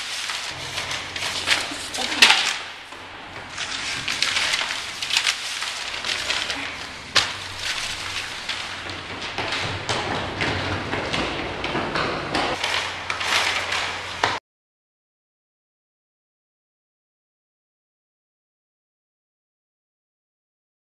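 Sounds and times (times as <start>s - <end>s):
paper rustling and crinkling: 0.0s - 14.4s.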